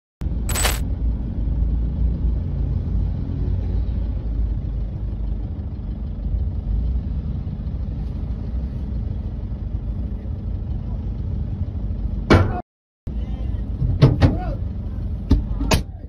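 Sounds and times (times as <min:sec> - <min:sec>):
car engine rumble: 0:03.6 - 0:12.3.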